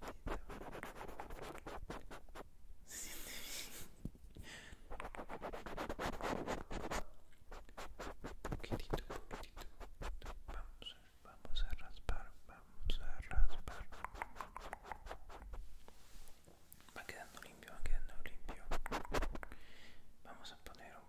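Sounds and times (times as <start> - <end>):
cotton swab scratching microphone: 0.0 - 2.5, 4.9 - 10.7, 13.3 - 15.7, 17.9 - 19.4.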